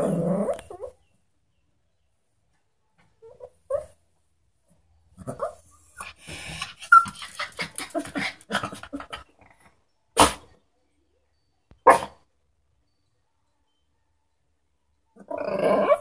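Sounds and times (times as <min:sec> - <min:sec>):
small dog whining: 0:00.3 - 0:01.0, 0:03.2 - 0:04.0
dog barking: 0:10.2 - 0:10.5, 0:11.8 - 0:12.2.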